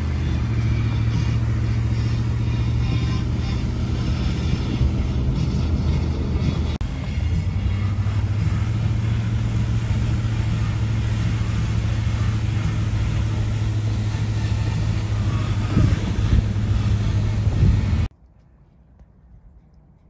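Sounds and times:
car engine and tyre rumble: 0.0 - 20.0
car bumps: 12.9 - 18.1.

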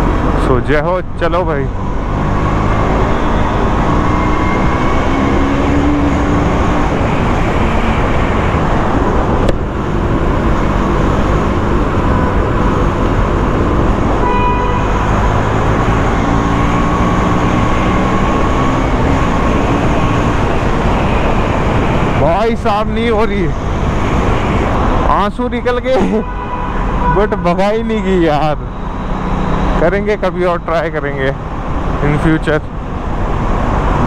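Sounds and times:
motorcycle engine accelerating: 1.5 - 25.1.

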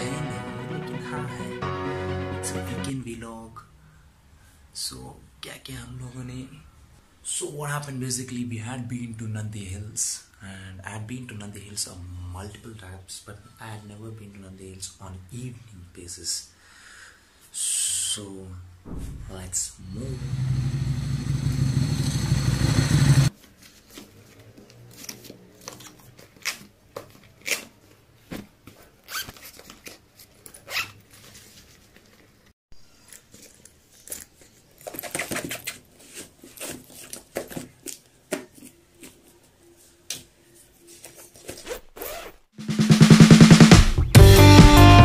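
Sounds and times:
loud steady hum: 19.2 - 23.3.

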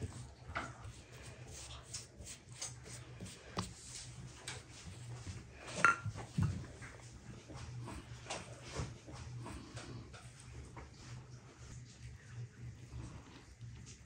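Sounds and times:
pastry brush on dough: 0.0 - 5.8
low steady hum: 0.0 - 14.0
brush clinking on glass bowl: 5.8 - 6.2.

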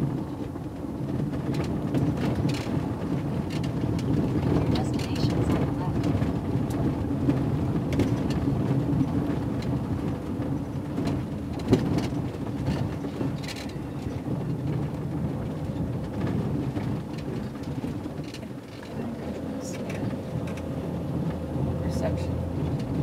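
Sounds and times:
van road and cabin rumble: 0.0 - 23.0
clicks and rattles: 11.0 - 21.4.

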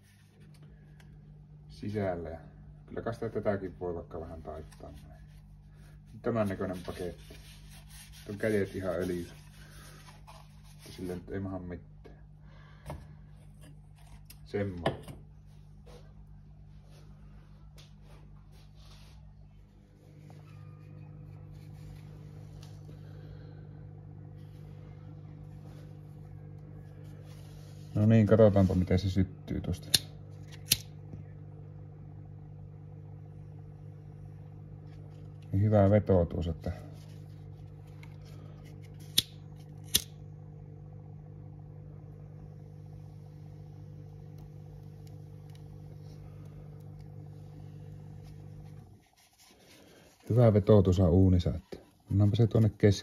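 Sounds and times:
low mechanical hum: 0.0 - 53.0
lighter clicks: 29.8 - 30.9, 39.1 - 40.1.

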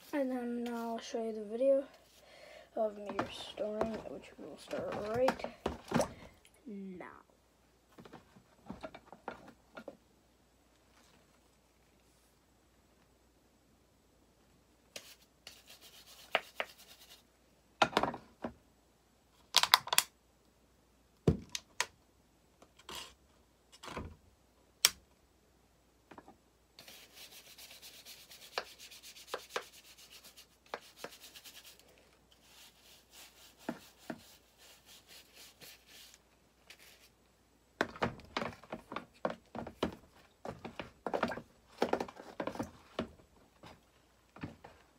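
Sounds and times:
knocks and clunks of handling: 3.0 - 6.4, 7.9 - 10.0, 37.8 - 43.8
scrub brush scrubbing metal: 32.4 - 36.2.

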